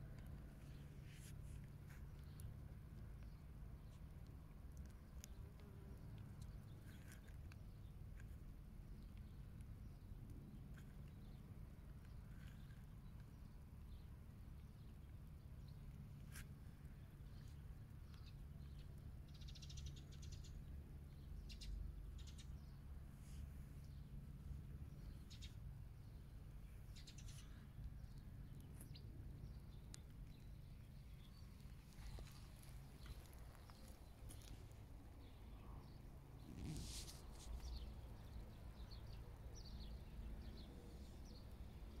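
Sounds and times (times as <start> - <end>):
low steady background hum: 0.0 - 42.0
faint bird chirps: 12.0 - 42.0.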